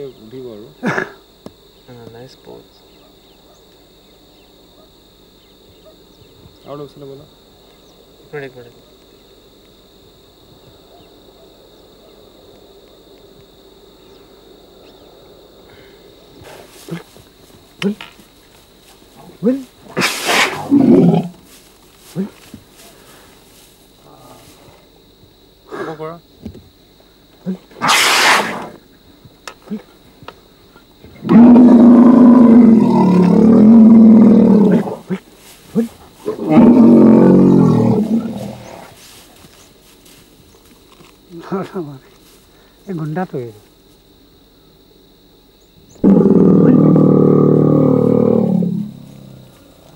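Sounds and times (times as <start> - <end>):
water buffalo bellowing: 35.8 - 38.9, 46.0 - 49.4.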